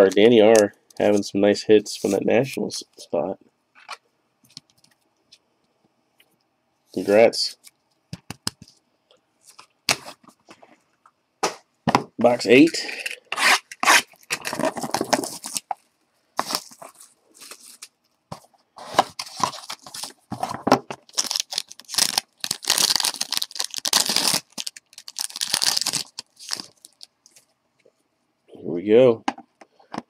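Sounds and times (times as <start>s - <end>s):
plastic wrapper tearing and crinkling: 13.7s - 15.8s, 16.4s - 17.9s, 21.1s - 27.1s.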